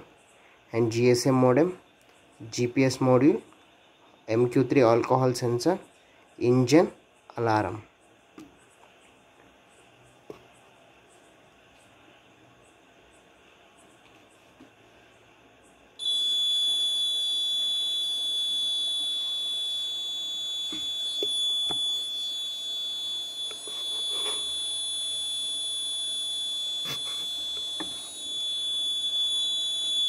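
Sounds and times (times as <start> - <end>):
buzzer continuous high alarm tone: 16.0 - 30.0.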